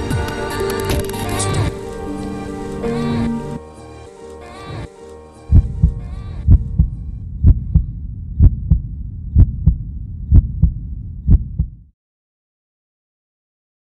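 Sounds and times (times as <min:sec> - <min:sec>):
heartbeat double thumps: 0:05.5 - 0:11.9.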